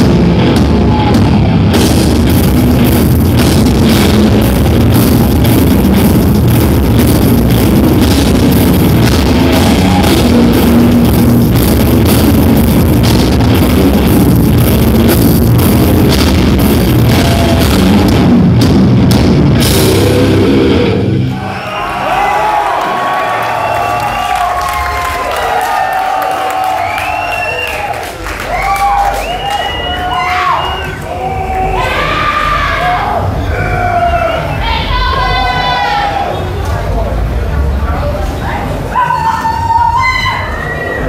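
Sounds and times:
death metal band playing: 0:00.0 - 0:25.0
crowd cheering and whistling: 0:09.1 - 0:11.1, 0:21.0 - 0:36.5, 0:39.0 - 0:41.0.

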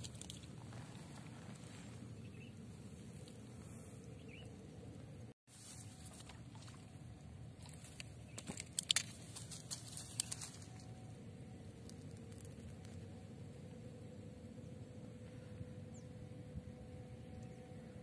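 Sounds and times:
sharp small clicks and rustles: 0:00.0 - 0:01.9, 0:05.6 - 0:11.1.

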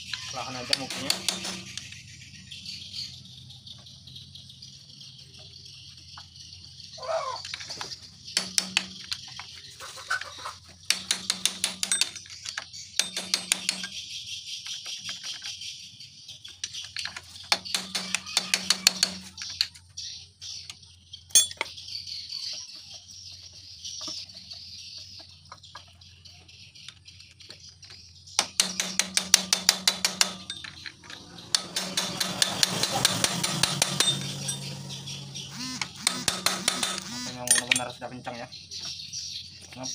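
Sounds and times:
metal-on-metal tapping: 0:00.0 - 0:02.0, 0:08.4 - 0:09.5, 0:10.8 - 0:14.0, 0:16.7 - 0:19.7, 0:28.4 - 0:38.0.

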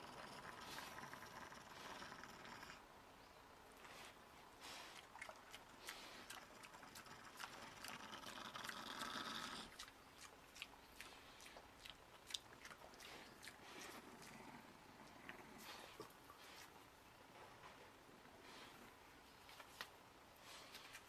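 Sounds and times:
pig chewing and crunching: 0:03.8 - 0:16.8.

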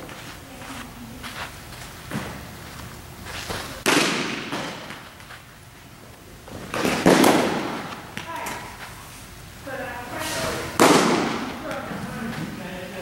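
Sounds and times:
baseballs smacking catcher's gear: 0:03.4 - 0:05.4, 0:06.4 - 0:08.9, 0:10.5 - 0:12.5.

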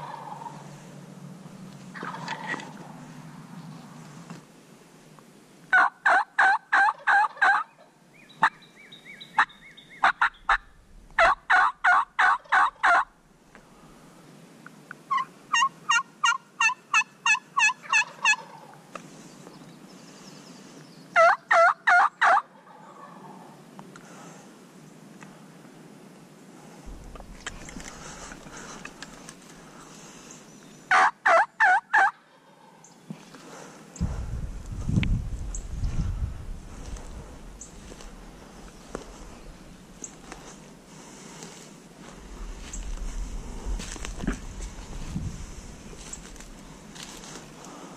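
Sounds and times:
turkey yelping: 0:00.0 - 0:00.6, 0:02.0 - 0:02.6, 0:05.7 - 0:07.7, 0:09.4 - 0:13.1, 0:15.1 - 0:18.8, 0:21.2 - 0:23.4, 0:30.9 - 0:32.6
turkey clucks: 0:00.0 - 0:00.7, 0:02.0 - 0:02.9, 0:05.7 - 0:07.8, 0:09.4 - 0:13.1, 0:15.1 - 0:18.8, 0:21.2 - 0:23.4, 0:30.9 - 0:32.6.

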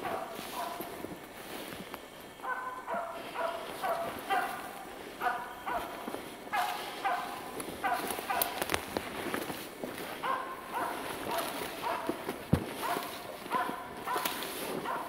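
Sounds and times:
dog barking high and yappy: 0:00.0 - 0:00.9, 0:02.4 - 0:08.6, 0:10.2 - 0:15.0.

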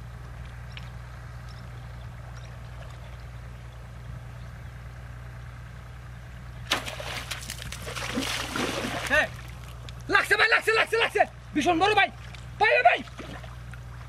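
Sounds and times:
low engine-like hum: 0:00.0 - 0:14.0
loud splash of water: 0:06.7 - 0:09.7.

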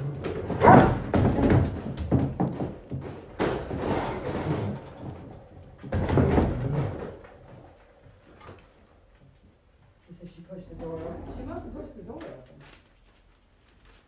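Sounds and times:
puppies scuffling and yapping: 0:10.8 - 0:14.0.

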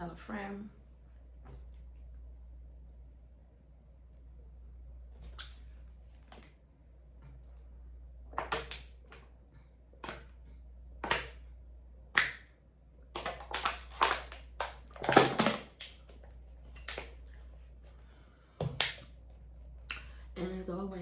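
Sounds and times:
plastic water bottle crackling: 0:13.1 - 0:17.2.

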